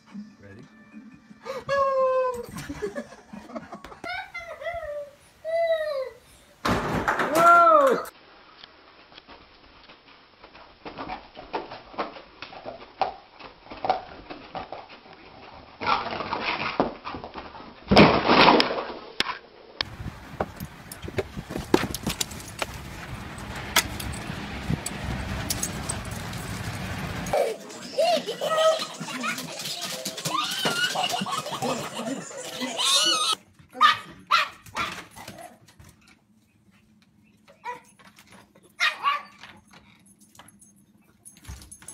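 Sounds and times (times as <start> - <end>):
dogs scuffling and knocking: 20.3 - 27.3.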